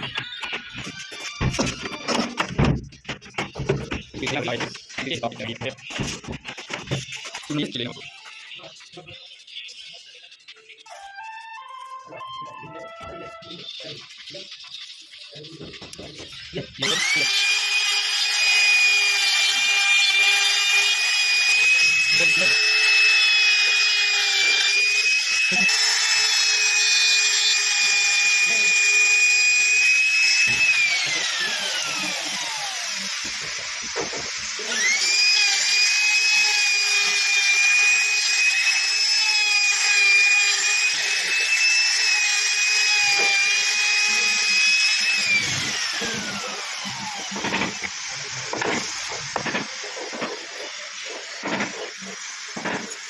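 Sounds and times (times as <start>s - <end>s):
router motor whine: 16.2s - 53.0s.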